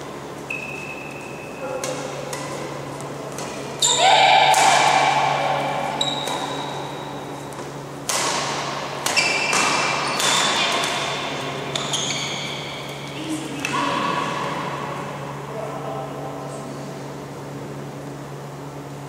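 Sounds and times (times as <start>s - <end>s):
shoes squeaking on floor: 0.4s - 1.7s, 3.8s - 4.2s, 5.9s - 7.8s, 9.1s - 13.2s
rackets hitting shuttlecock: 0.5s - 14.2s.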